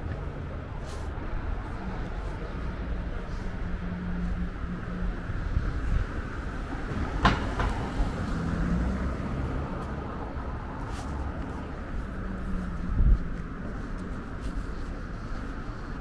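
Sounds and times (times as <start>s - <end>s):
street traffic rumble: 0.0s - 16.0s.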